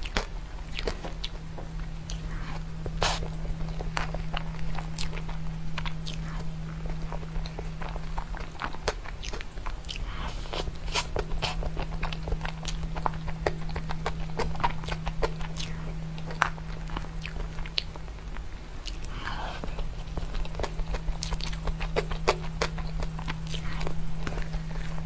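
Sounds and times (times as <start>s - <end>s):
low hum: 0.0s - 25.0s.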